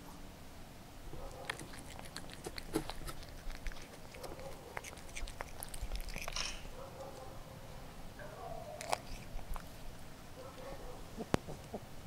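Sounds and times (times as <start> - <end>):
cat chewing and crunching: 1.1 - 7.7, 8.4 - 11.8
cat licking or sniffing: 1.2 - 6.7, 8.7 - 10.0.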